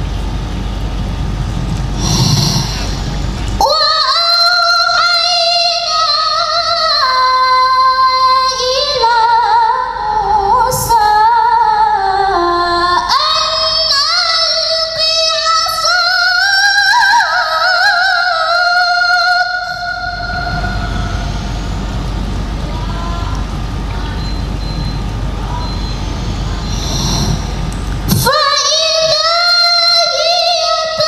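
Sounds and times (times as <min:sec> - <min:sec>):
woman taking a breath: 0:02.0 - 0:03.3, 0:26.6 - 0:27.6
woman chanting melodically: 0:28.1 - 0:31.0.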